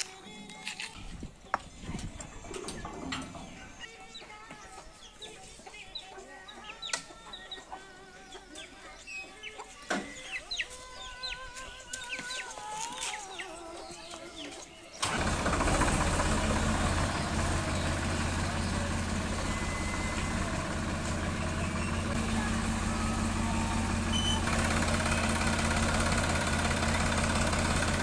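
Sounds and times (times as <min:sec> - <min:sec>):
chickens clucking: 0:00.0 - 0:28.0
short high chirps: 0:24.1 - 0:24.4.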